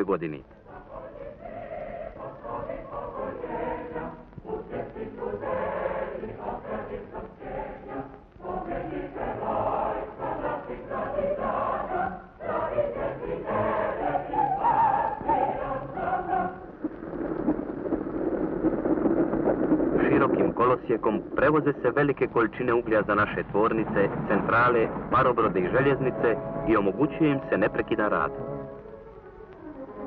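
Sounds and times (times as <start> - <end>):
choir singing: 0.6 - 16.7, 25.3 - 28.8.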